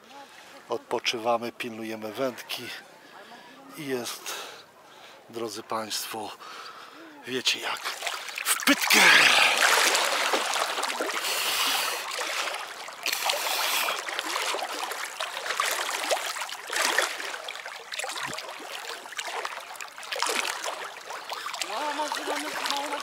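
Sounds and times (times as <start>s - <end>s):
water splashing and sloshing: 7.3s - 23.0s.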